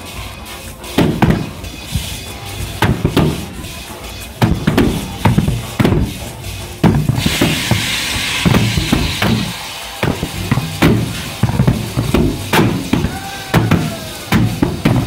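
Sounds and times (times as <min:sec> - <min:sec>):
rushing hiss: 0:05.0 - 0:14.9
deep explosive bangs in pipe: 0:06.8 - 0:15.0.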